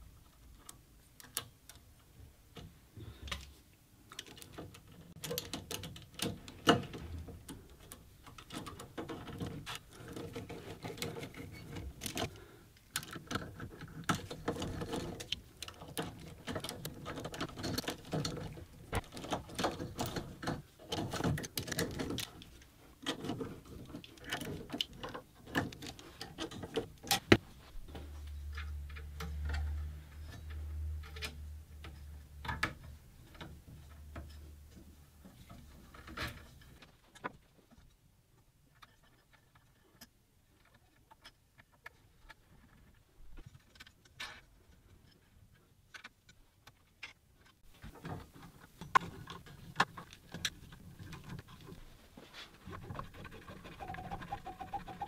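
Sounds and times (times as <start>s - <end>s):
metal parts clicking and tapping: 4.1s - 27.4s.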